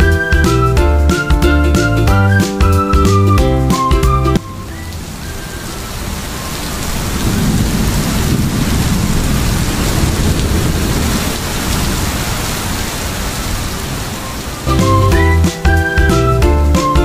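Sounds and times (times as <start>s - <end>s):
rain hissing on wet road: 4.4s - 17.0s.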